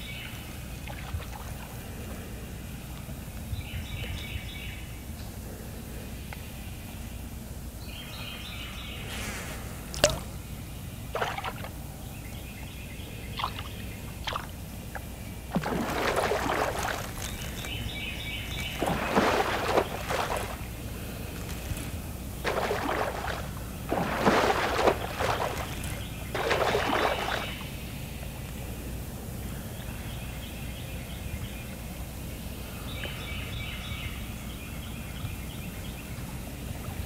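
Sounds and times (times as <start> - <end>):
water splashing: 0.8 - 2.0, 9.1 - 10.4, 11.1 - 11.9, 13.3 - 27.7.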